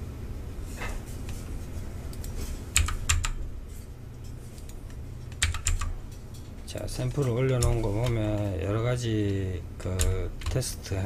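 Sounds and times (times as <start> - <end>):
low steady hum: 0.0 - 11.0
keyboard and mouse clicks: 2.1 - 3.4, 4.6 - 5.9, 7.1 - 8.5.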